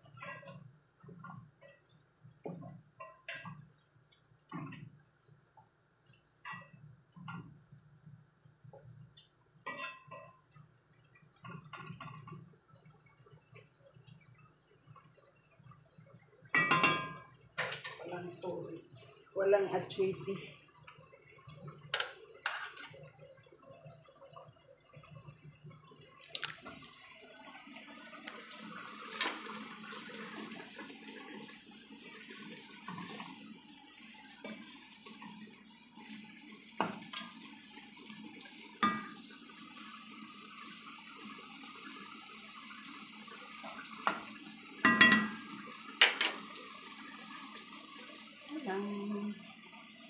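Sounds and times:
chicken sizzling in sauce: 0:16.6 - 0:25.3, 0:26.1 - 0:50.0.

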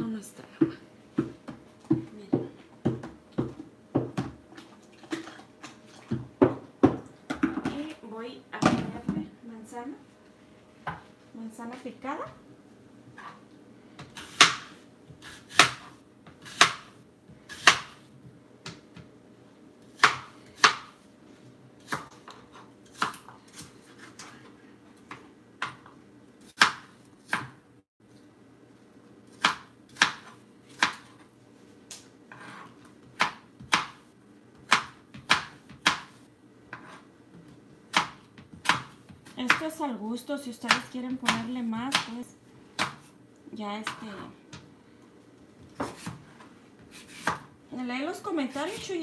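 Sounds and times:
knife chopping on plastic board: 0:14.0 - 0:18.0, 0:20.0 - 0:21.0, 0:26.5 - 0:27.6, 0:29.3 - 0:31.1, 0:32.4 - 0:34.0, 0:34.6 - 0:37.0, 0:37.9 - 0:39.6, 0:42.8 - 0:43.1, 0:45.8 - 0:47.5.

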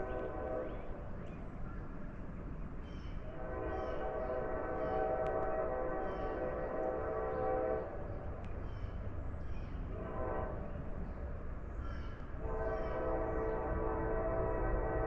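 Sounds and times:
locomotive air horn: 0:00.0 - 0:01.0, 0:03.3 - 0:08.1, 0:09.9 - 0:10.7, 0:12.4 - 0:15.0.

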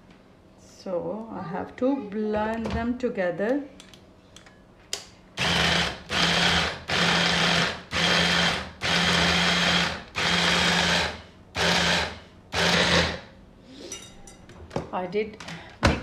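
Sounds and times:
hand blender motor pulsing: 0:05.4 - 0:13.2.

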